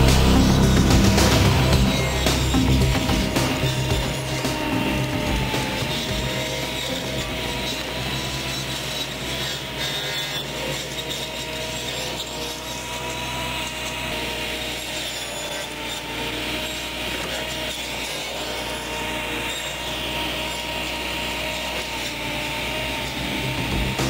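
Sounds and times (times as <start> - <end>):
hedge cutter cutting branches: 0.0 - 24.0
steady machine whine: 0.0 - 24.0.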